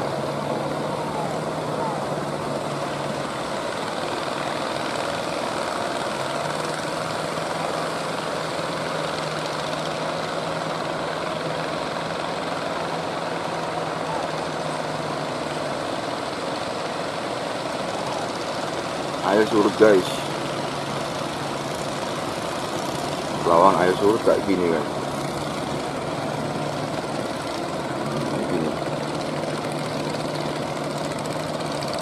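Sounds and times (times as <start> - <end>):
boat engine drone: 0.0 - 32.0.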